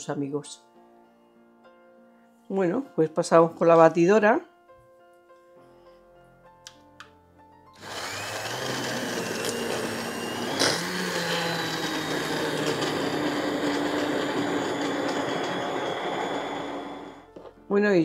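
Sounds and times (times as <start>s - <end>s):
immersion blender whining: 7.8s - 17.3s.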